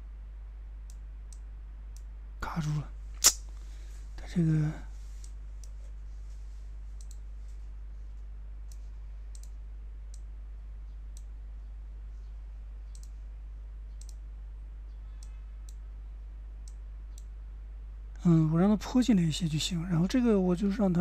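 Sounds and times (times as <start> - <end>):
steady low hum: 0.0 - 21.0
computer mouse clicking: 7.0 - 7.2, 8.7 - 10.3, 12.9 - 13.2, 13.9 - 14.2.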